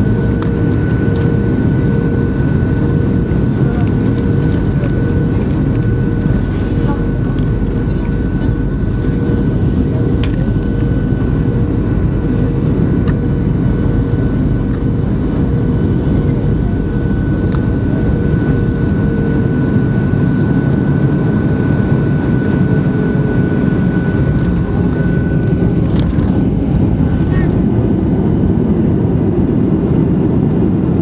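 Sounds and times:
whining engine tones: 0.0s - 29.6s
jet engines rumbling: 0.0s - 31.0s.

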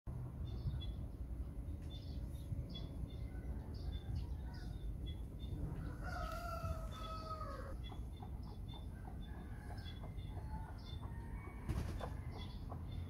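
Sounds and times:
small birds chirping: 0.4s - 13.0s
rooster crowing: 5.8s - 7.8s.

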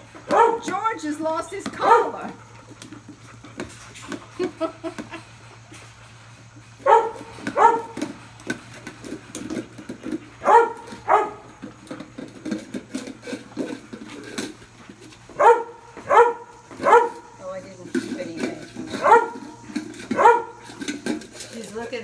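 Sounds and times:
puppy barking: 0.3s - 0.7s, 1.8s - 2.2s, 6.8s - 8.0s, 10.4s - 11.4s, 15.4s - 17.3s, 19.0s - 19.5s, 20.1s - 20.6s.

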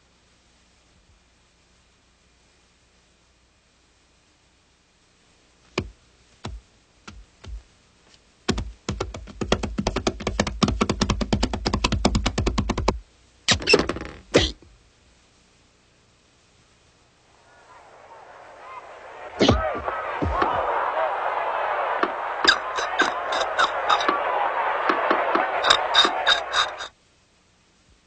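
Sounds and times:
fast run of sharp knocks: 8.5s - 13.0s, 17.7s - 26.9s
cartoon knocks: 19.3s - 20.6s.

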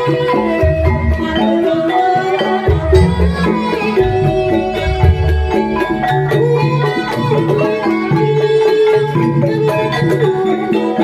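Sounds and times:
steady drumming: 2.5s - 8.8s.

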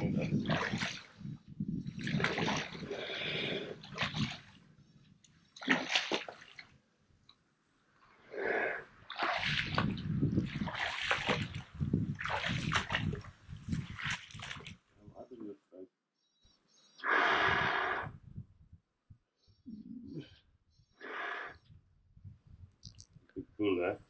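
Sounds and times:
paddle strokes splashing water: 0.4s - 1.1s, 2.0s - 2.9s, 5.6s - 6.6s, 9.0s - 13.2s, 13.8s - 14.8s.

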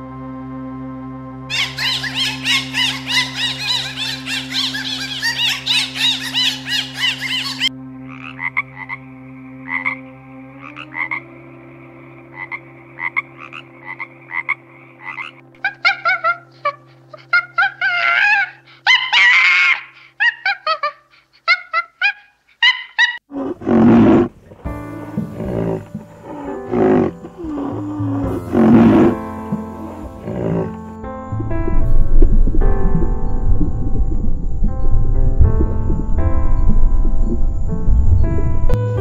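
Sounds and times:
dolphin clicks and squeals: 1.5s - 7.7s, 15.0s - 23.2s
frogs croaking: 1.5s - 38.8s
loud rough animal call: 22.9s - 31.8s.

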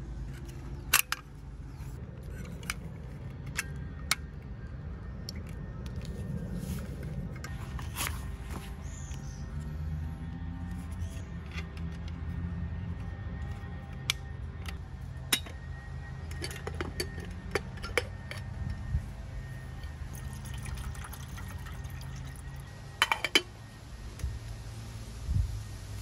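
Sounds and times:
water poured into metal kettle: 20.1s - 22.6s.

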